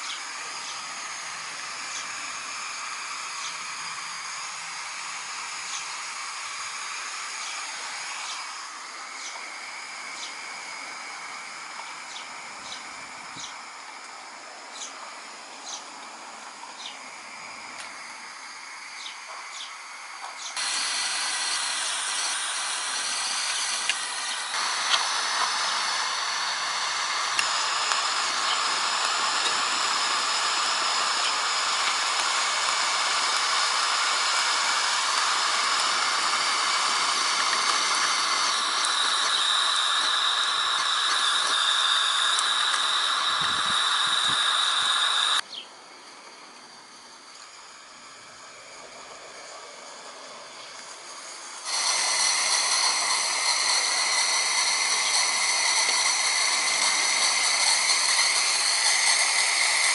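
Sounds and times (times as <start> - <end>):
steam hissing: 0.0 - 59.9
thin whistling tone: 18.9 - 49.0, 49.8 - 59.9.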